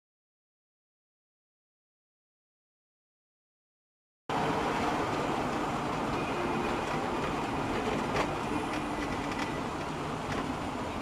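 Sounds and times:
vehicle rumble and road noise: 0:04.3 - 0:11.0.

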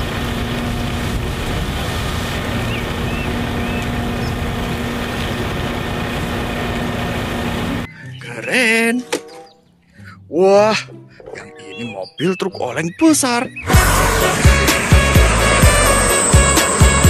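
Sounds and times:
concrete discharging rumble: 0:00.0 - 0:07.9, 0:13.7 - 0:17.0
engine hum: 0:00.0 - 0:10.2, 0:13.6 - 0:17.0.

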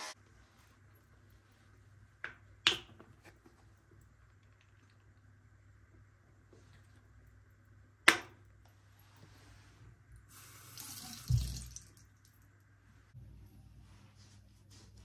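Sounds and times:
tap running into a sink: 0:10.7 - 0:12.0.

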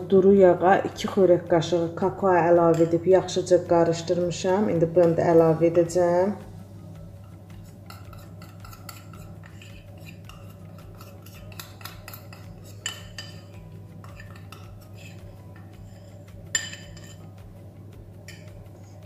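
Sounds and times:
steady low hum: 0:00.0 - 0:19.0
spoon clinking on bowl: 0:02.7 - 0:03.0, 0:07.3 - 0:17.4
metal spoon scraping ceramic bowl: 0:07.1 - 0:17.4.

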